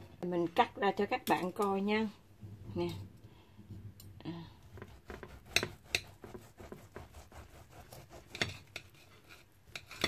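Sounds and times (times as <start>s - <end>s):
knife and fork scraping plate: 4.8s - 10.0s.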